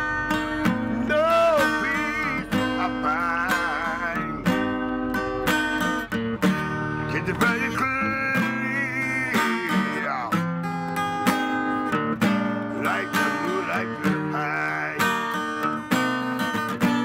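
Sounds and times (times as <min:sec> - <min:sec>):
acoustic guitar strumming: 0:00.0 - 0:17.0
person singing: 0:01.0 - 0:04.7, 0:07.1 - 0:10.4, 0:12.6 - 0:15.3.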